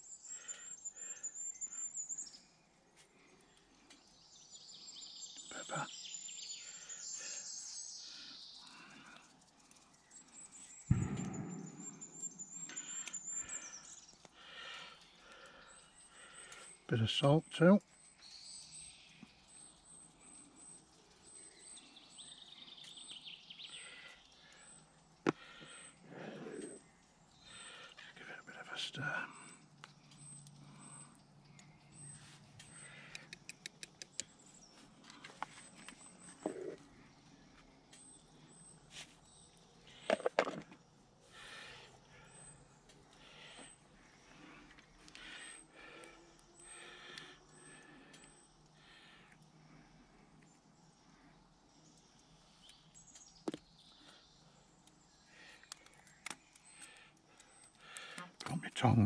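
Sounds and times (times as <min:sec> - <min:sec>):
faint sharp clicks: 0:32.6 - 0:34.4, 0:55.6 - 0:58.5.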